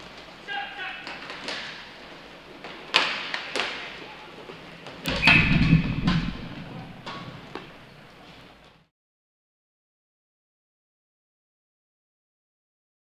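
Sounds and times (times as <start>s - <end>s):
hockey sticks and puck clacking: 0.0s - 8.8s
knocks and thuds: 5.1s - 7.8s.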